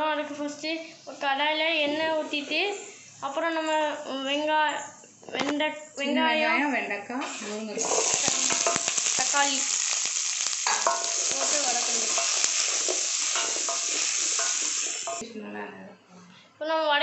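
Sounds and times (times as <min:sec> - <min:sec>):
vegetables sizzling in hot oil: 0:07.2 - 0:15.2
utensil scraping steel pan: 0:07.8 - 0:09.2, 0:10.6 - 0:15.2.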